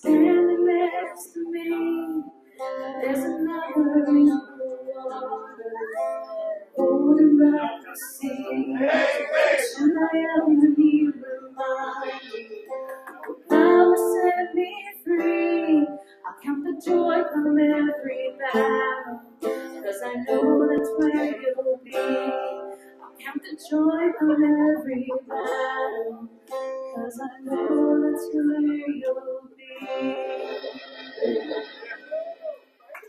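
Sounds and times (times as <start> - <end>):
person singing: 0.0 - 32.7
strummed acoustic guitar: 0.0 - 32.7.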